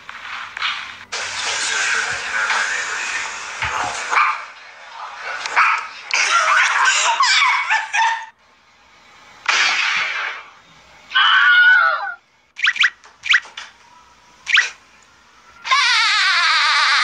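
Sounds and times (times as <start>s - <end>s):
wavering drawn-out cry: 11.1s - 12.8s, 15.6s - 17.0s
animal cries: 11.1s - 13.4s, 15.6s - 17.0s.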